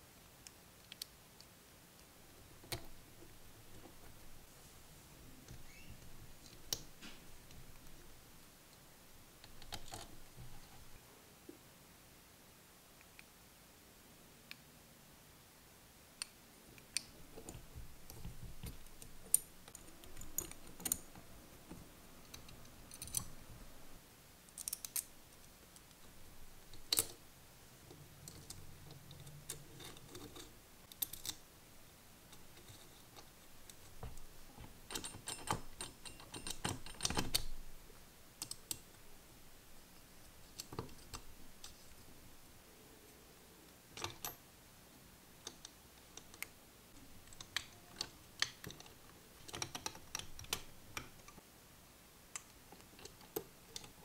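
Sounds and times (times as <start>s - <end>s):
small metal parts clicking and clinking: 22.2s - 23.4s, 24.5s - 25.1s, 26.6s - 27.2s, 28.2s - 31.4s, 32.3s - 37.6s, 47.2s - 51.4s.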